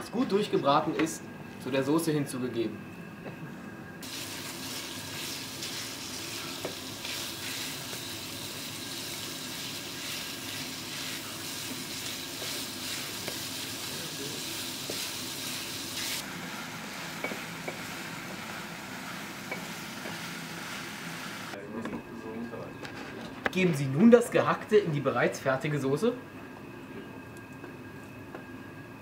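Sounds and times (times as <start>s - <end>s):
meat sizzling in a pan: 4.0s - 21.5s.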